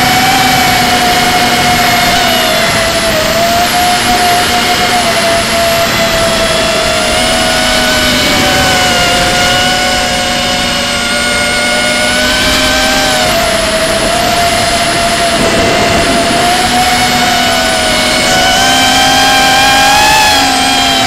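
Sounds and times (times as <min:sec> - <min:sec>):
drone motors whining: 0:00.0 - 0:21.0
rush of air noise: 0:03.9 - 0:20.6.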